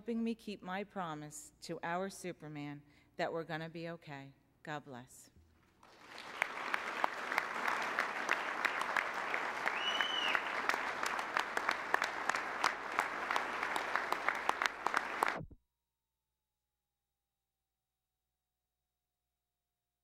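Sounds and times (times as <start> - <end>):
audience applauding: 5.8 - 15.5.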